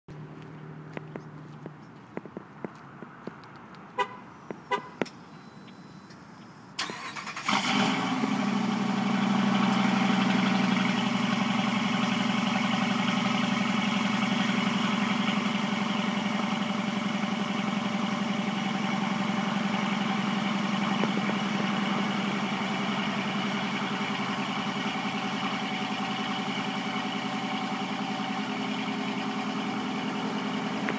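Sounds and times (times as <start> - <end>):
car engine idling: 0.1 - 30.9
engine starter cranking: 6.8 - 8.1.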